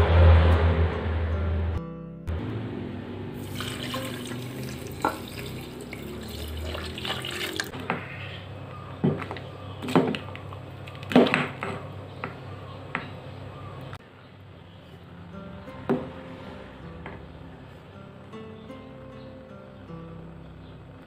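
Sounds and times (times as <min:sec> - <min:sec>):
liquid splashing in bowl: 0:03.4 - 0:07.8
milk pouring into metal bowl: 0:03.4 - 0:07.8.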